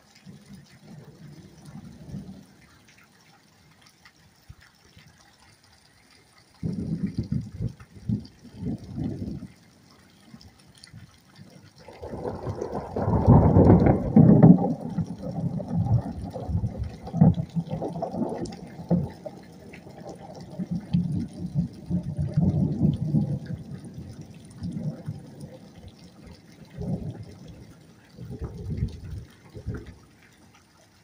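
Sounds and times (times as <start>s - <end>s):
wind buffeting microphone: 6.6s - 9.6s, 12.0s - 30.1s.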